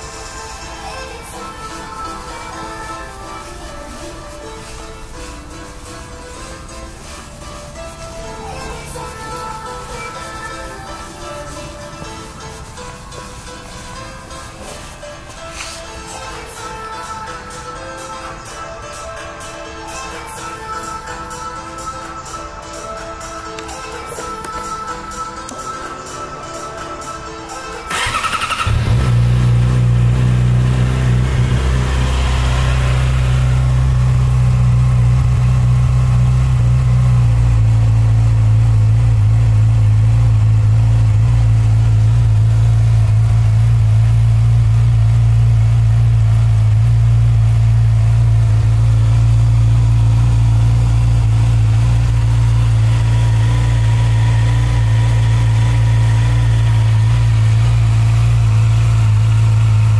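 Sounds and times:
motorcycle engine starting and idling: 27.8 - 59.9.

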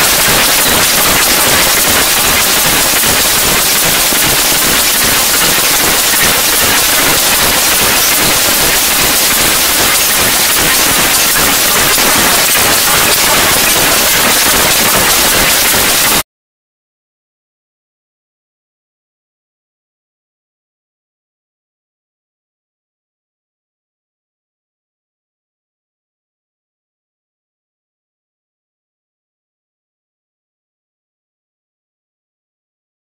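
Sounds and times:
loud static hiss: 0.0 - 16.2.

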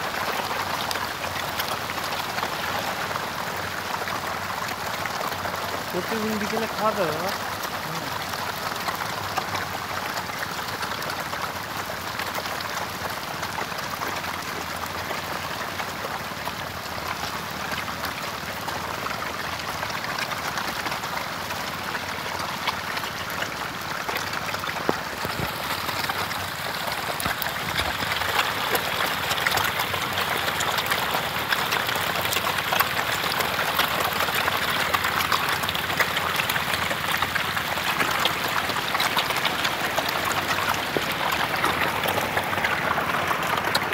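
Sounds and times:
fish splashing at water surface: 19.2 - 43.9.

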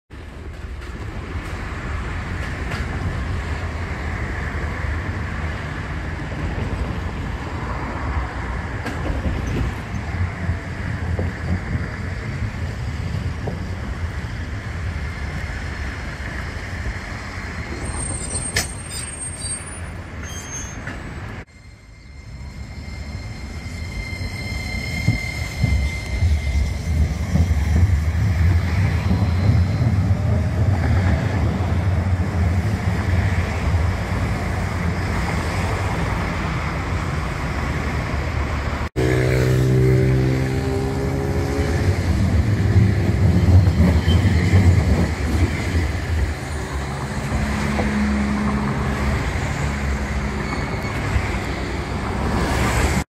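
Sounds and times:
road traffic: 0.1 - 53.0
tram approaching: 0.1 - 53.0
tram high whine: 0.1 - 53.0
high squeaks and clicks: 22.5 - 29.9, 50.1 - 51.7.

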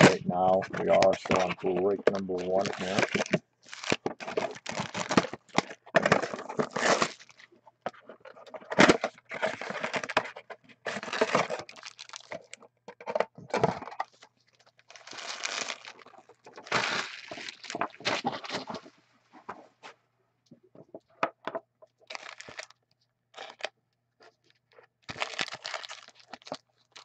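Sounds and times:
foil packs crinkling: 0.0 - 7.5, 8.3 - 10.3, 10.9 - 12.6, 13.6 - 18.9, 22.0 - 22.8, 25.1 - 27.0.

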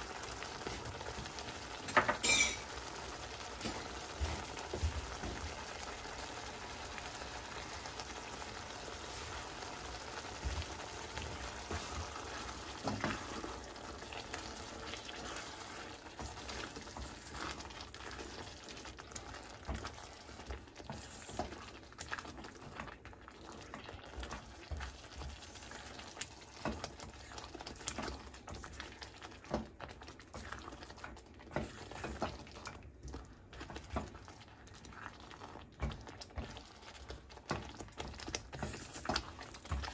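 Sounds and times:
curry sauce bubbling and sizzling: 0.0 - 39.9
spatula scraping and tapping pan: 1.8 - 5.6, 10.2 - 18.4.

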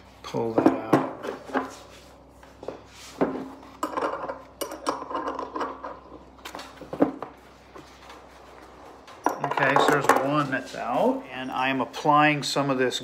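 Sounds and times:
metal clinks and knocks: 9.2 - 10.4.

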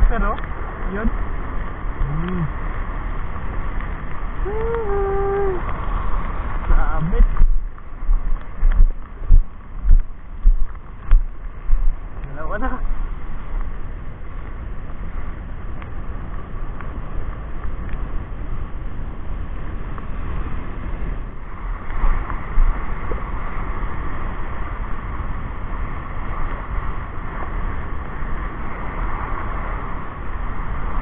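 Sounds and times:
small waves on pebbly shore: 0.0 - 8.7
wind buffeting microphone: 0.0 - 31.0.

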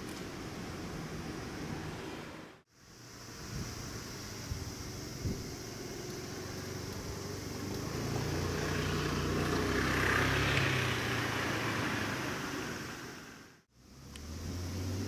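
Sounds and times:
vehicle passing by: 5.8 - 15.0.

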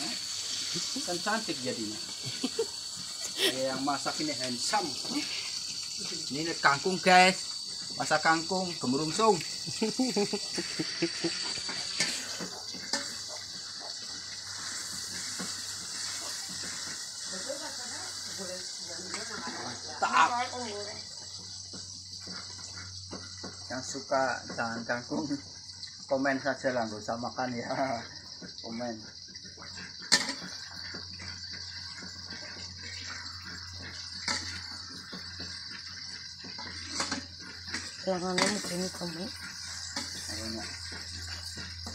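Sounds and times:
high-pitched background hiss: 0.0 - 13.4, 38.2 - 40.8
food sizzling in a wok: 0.0 - 41.9
sauce frying: 0.0 - 41.9
metal ladle scraping a wok: 11.5 - 17.1, 29.8 - 41.9.

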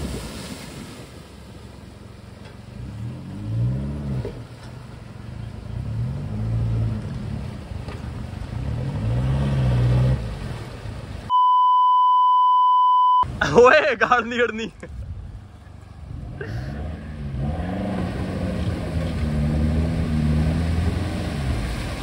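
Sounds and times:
water washing around wheels: 0.0 - 11.3, 15.4 - 22.0
truck engine revving: 2.0 - 11.3, 16.0 - 22.0
steady electronic beep: 11.3 - 13.3.

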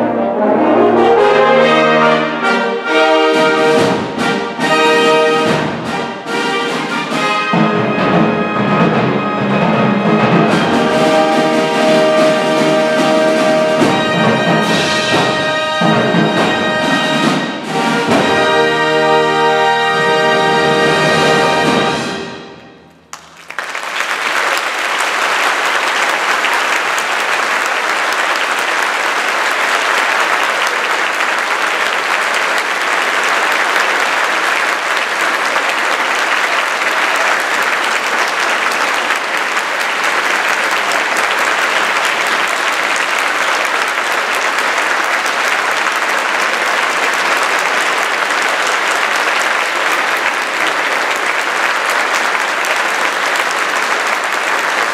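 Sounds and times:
orchestra final chord: 0.0 - 22.9
audience applause: 0.8 - 22.2, 23.1 - 54.9.

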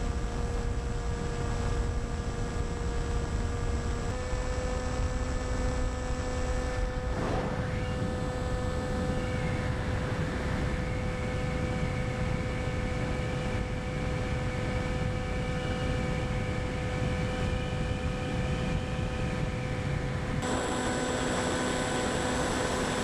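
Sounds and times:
model plane motor whine: 0.0 - 23.0
wind rush: 7.0 - 23.0.

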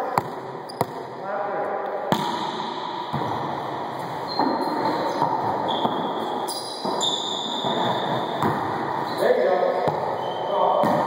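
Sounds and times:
sneakers squeaking on hardwood: 4.2 - 9.2.

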